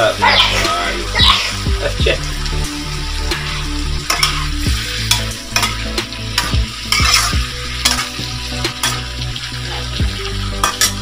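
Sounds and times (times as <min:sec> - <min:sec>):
food sizzling in a wok: 0:00.0 - 0:11.0
metal spatula scraping a pan: 0:03.4 - 0:10.0, 0:10.6 - 0:11.0.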